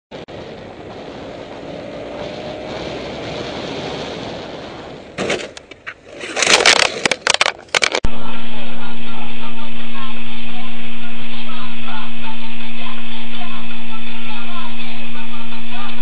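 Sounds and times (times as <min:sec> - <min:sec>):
wind rush: 0:00.1 - 0:05.2, 0:08.0 - 0:16.0
motorcycle engine hum: 0:00.1 - 0:08.1
motorcycle crashing and scraping: 0:00.3 - 0:08.1.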